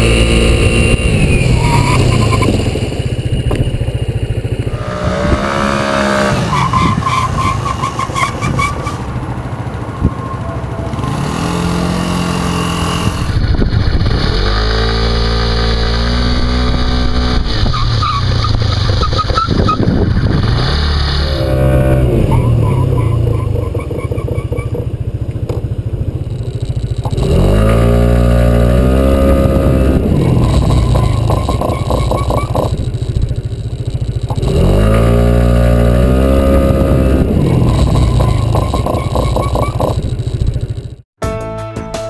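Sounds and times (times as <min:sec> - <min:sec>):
scooter engine pulling away: 0:00.0 - 0:41.0.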